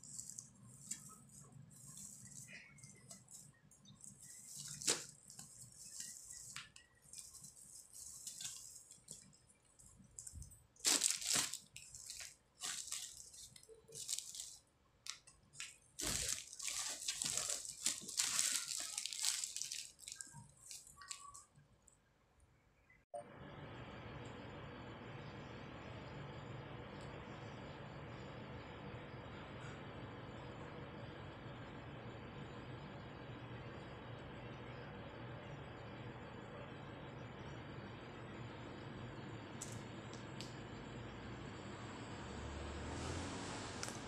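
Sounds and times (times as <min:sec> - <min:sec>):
plastic garland needles rustling: 0:00.0 - 0:21.6.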